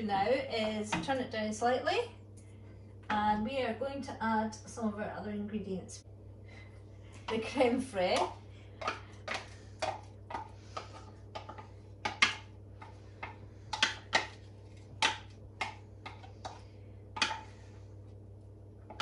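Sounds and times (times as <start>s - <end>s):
spoon tapping and scraping containers: 7.3s - 17.8s.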